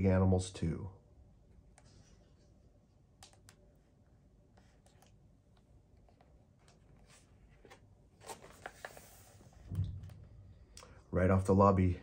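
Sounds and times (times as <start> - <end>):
paper page turning: 6.7 - 9.5.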